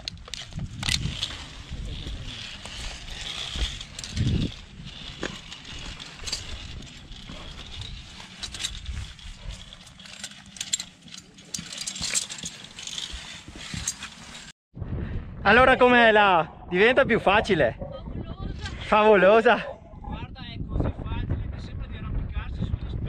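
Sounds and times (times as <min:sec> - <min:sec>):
wind buffeting the microphone: 0:00.0 - 0:09.9, 0:14.8 - 0:23.0
climbing gear clicking and knocking: 0:00.0 - 0:14.6.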